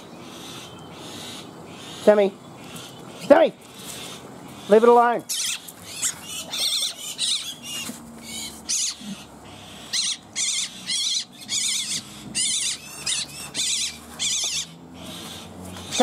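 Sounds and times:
bird squawking: 0.2s - 16.0s.

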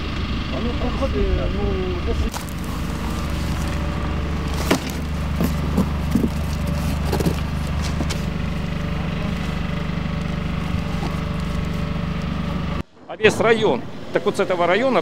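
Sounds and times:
vehicle engine idling: 0.0s - 12.8s
cardboard box knocks and rattles: 4.5s - 8.3s.

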